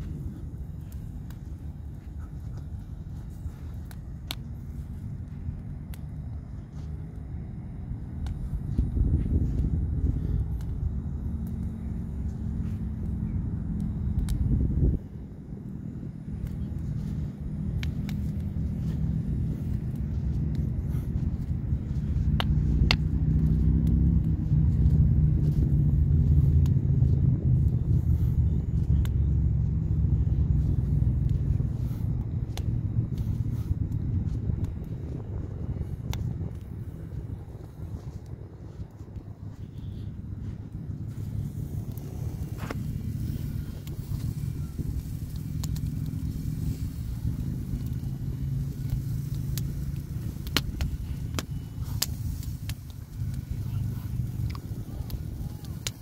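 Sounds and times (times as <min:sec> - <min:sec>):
sharp pops of fire: 0:00.0 - 0:15.1, 0:15.7 - 0:56.0
steady low rumble: 0:00.0 - 0:56.0
wood fire crackling: 0:00.0 - 0:56.0
sharp snaps: 0:03.7 - 0:06.3, 0:09.6 - 0:14.9, 0:16.3 - 0:35.2, 0:35.9 - 0:38.4, 0:41.1 - 0:56.0.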